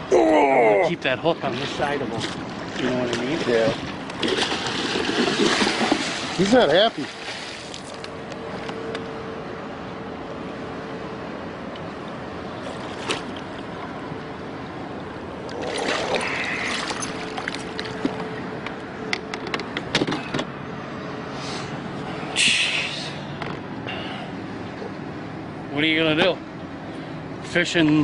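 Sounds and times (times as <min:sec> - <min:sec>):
steady hum: 0:00.0 - 0:27.8
fish splashing and thrashing: 0:02.2 - 0:08.1, 0:12.6 - 0:13.9, 0:15.4 - 0:18.5.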